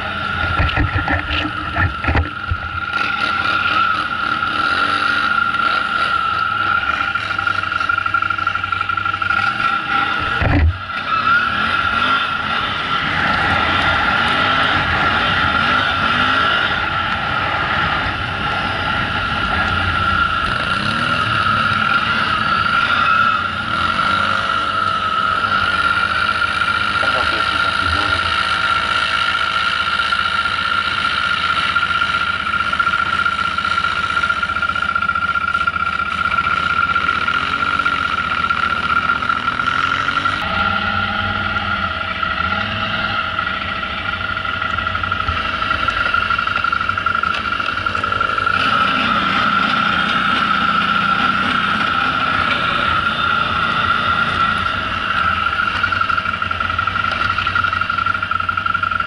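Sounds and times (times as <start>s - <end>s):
atv engine revving: 0.0s - 59.0s
steady high tone: 35.8s - 59.0s.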